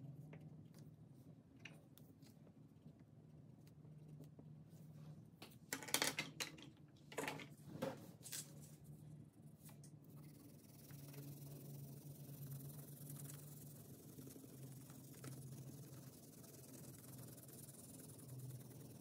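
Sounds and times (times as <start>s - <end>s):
crayon scribbling on paper: 10.2s - 19.0s.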